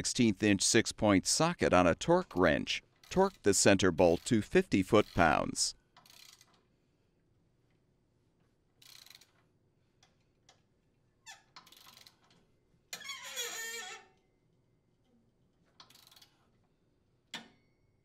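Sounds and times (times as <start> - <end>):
torque wrench ratcheting: 6.0 - 6.6, 8.8 - 9.4, 11.6 - 12.3, 15.8 - 16.4
wrench clicks: 6.0 - 6.6, 8.8 - 9.4, 11.6 - 12.4, 15.8 - 16.4.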